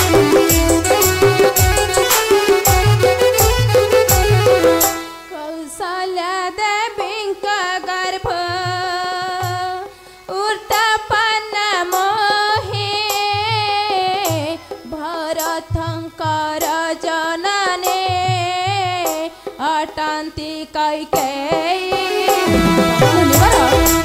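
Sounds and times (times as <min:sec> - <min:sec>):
deep hand-drum beats: 0:00.0 - 0:05.0, 0:22.4 - 0:24.0
ornamented melody with gliding notes: 0:00.0 - 0:05.4, 0:22.2 - 0:24.0.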